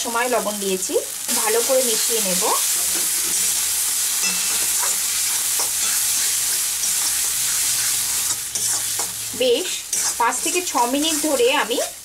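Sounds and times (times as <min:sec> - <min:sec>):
paste sizzling in hot oil: 0:00.0 - 0:12.0
metal spatula scraping wok: 0:02.6 - 0:11.6.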